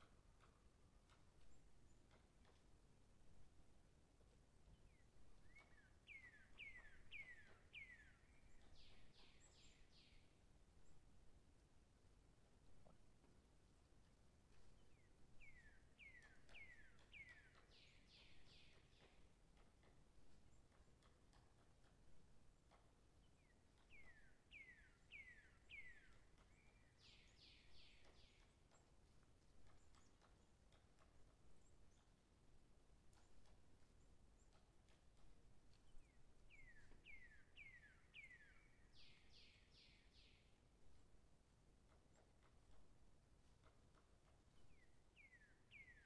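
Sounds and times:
bird calling: 0:05.4 - 0:10.2
songbird whistling: 0:05.4 - 0:10.2.

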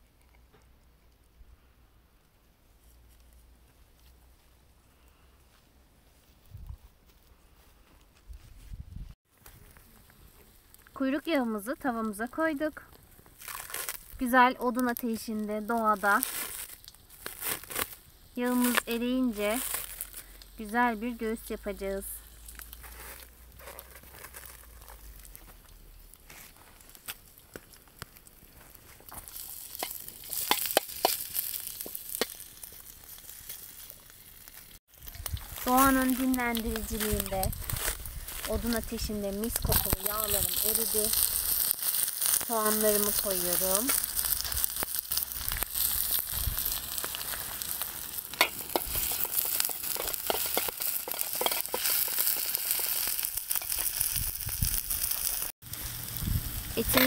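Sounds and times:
fat sizzling in a pan: 0:09.5 - 0:57.0
metal spoon stirring and clicking: 0:29.7 - 0:31.2, 0:48.3 - 0:52.9
metal spoon scraping pan: 0:49.8 - 0:52.0.

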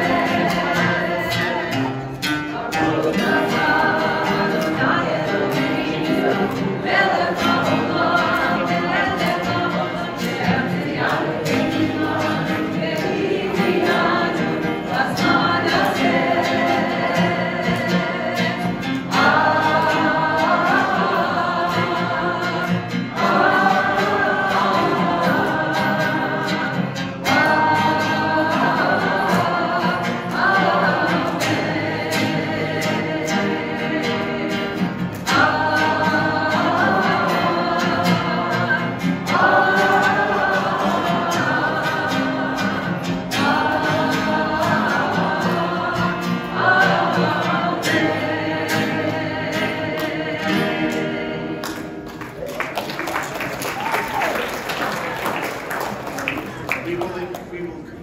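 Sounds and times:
group of voices singing: 0:00.0 - 0:56.7
acoustic guitar: 0:00.0 - 0:58.0.

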